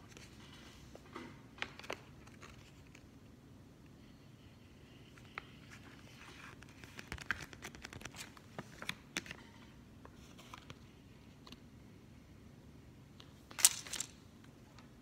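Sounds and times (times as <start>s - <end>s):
faint low hum: 0.0s - 15.0s
paper leaflet rustling: 5.0s - 9.5s.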